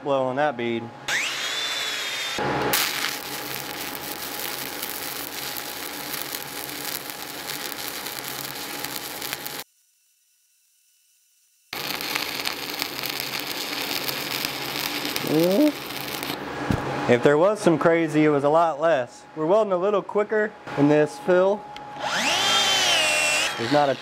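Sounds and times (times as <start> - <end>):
angle grinder spinning up: 1.1 - 9.6, 11.8 - 16.4, 22.0 - 24.0
welding arc crackling and hissing: 2.4 - 16.4.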